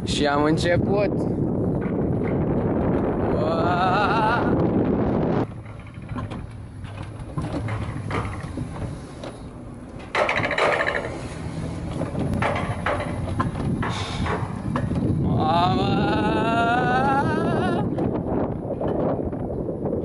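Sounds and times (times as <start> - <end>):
coaster sled rumbling on track: 0.0 - 20.0
rattles and clicks: 1.6 - 16.2.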